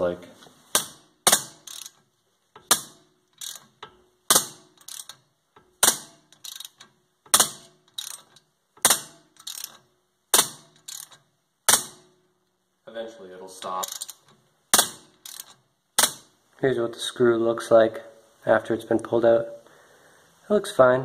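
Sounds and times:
wrench ratchet clicks: 0:00.8 - 0:12.0, 0:13.8 - 0:16.3.

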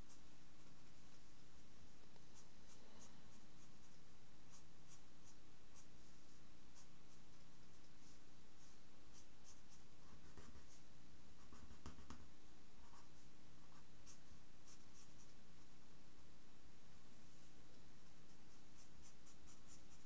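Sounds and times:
felt-tip pen scratching on paper: 0:02.2 - 0:15.4, 0:18.2 - 0:20.0.

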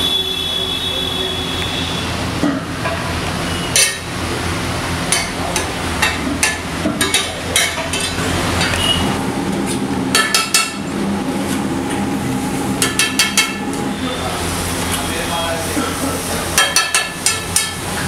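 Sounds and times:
metal spatula clanking on griddle: 0:03.7 - 0:04.1, 0:05.1 - 0:08.9, 0:10.1 - 0:10.9, 0:12.8 - 0:13.7, 0:16.6 - 0:18.0
steady low hum: 0:03.9 - 0:18.0.

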